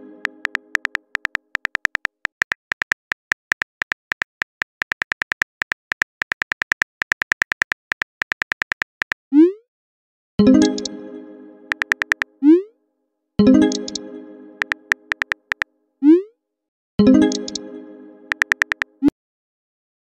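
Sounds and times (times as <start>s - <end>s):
keyboard tap clicks: 0.2s - 9.2s, 11.7s - 12.3s, 13.7s - 14.0s, 14.6s - 15.6s, 17.3s - 17.6s, 18.3s - 18.9s.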